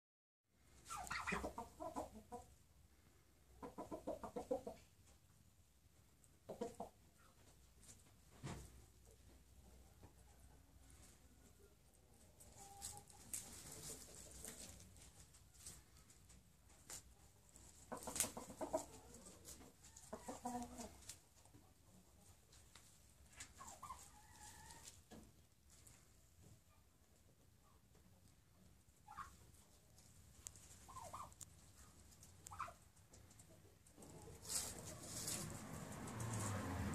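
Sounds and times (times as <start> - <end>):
fowl clucking: 0.8 - 2.6, 3.5 - 4.8, 6.5 - 7.0, 17.8 - 21.2, 29.0 - 29.5, 30.6 - 31.4, 32.4 - 32.8
chickens clucking: 0.8 - 5.4, 6.2 - 7.6, 9.0 - 36.5.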